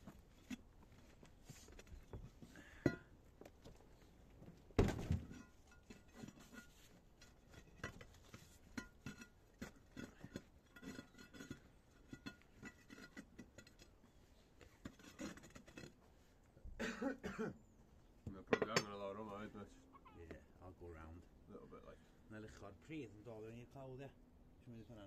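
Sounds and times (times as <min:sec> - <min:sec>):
thump: 0:04.8 - 0:05.3.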